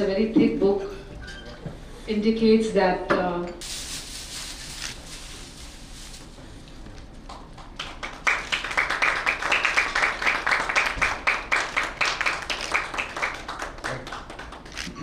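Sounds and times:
audience applauding: 7.2 - 14.9.

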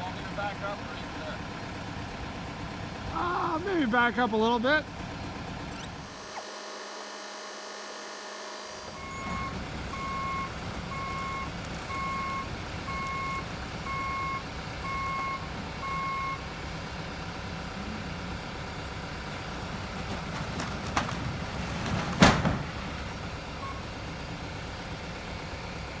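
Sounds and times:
truck engine running: 0.0 - 26.0
reversing alarm beeping: 5.7 - 16.4, 23.6 - 23.9
loud thud of load sliding off: 20.0 - 23.0.

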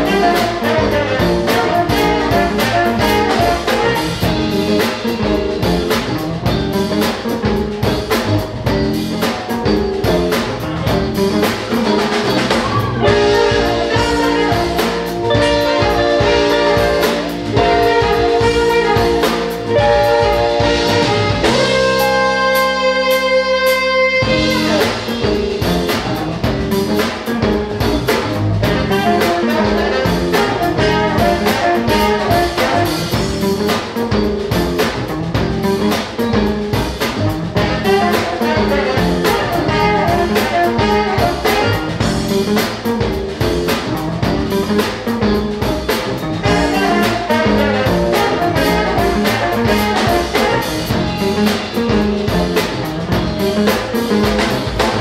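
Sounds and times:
saxophone and trombone: 0.0 - 6.0, 11.9 - 26.1, 28.1 - 33.8, 37.1 - 42.7, 46.2 - 55.0
bass guitar: 0.0 - 55.0
drum kit beat: 0.0 - 55.0
electric guitar: 0.0 - 55.0.

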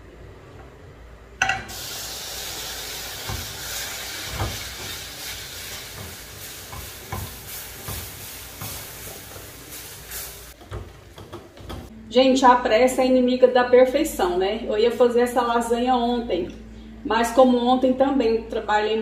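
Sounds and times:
roux sizzling with steady hiss: 1.5 - 11.9
spoon knocking against pan: 6.0 - 8.8.

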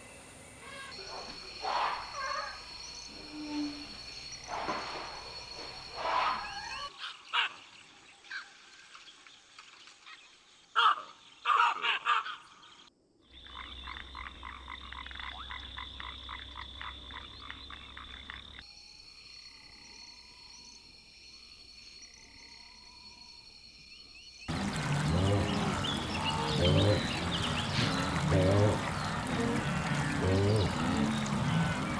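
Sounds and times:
high insect-like whine: 0.0 - 6.9
frogs croaking: 0.0 - 8.7, 10.5 - 31.9
loud animal calls: 0.6 - 5.0, 24.5 - 31.9
loud splashing: 24.5 - 31.9.

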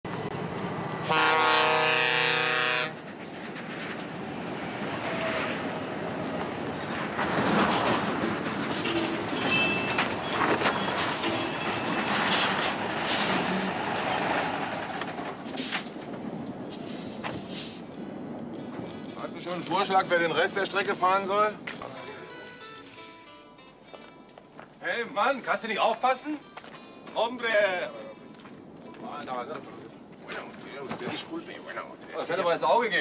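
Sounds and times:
heavy truck running: 0.0 - 24.0
truck air horn blast: 1.0 - 3.0
tyres rolling over gravel: 2.2 - 23.1, 23.7 - 33.0.

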